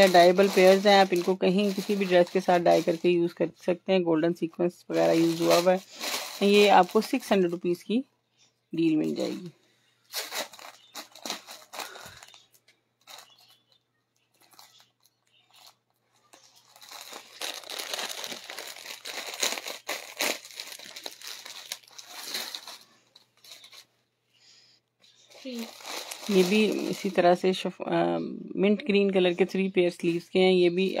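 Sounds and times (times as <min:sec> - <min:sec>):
plastic packets crinkling: 0:00.0 - 0:03.5, 0:04.9 - 0:08.0, 0:08.8 - 0:24.0, 0:25.2 - 0:27.4.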